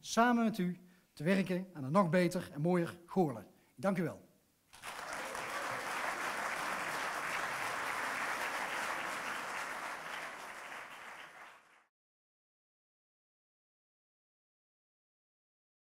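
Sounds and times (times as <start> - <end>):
large audience applauding: 4.7 - 11.9.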